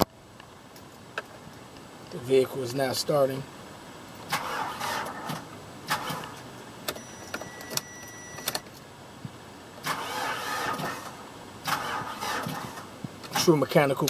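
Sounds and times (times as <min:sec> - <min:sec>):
truck starter motor cranking: 0:04.3 - 0:08.6, 0:09.8 - 0:13.6.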